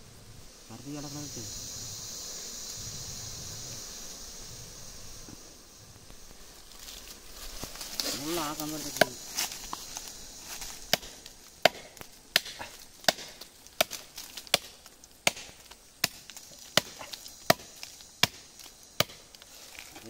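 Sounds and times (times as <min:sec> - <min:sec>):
axe chopping tree trunk: 0:10.6 - 0:19.3.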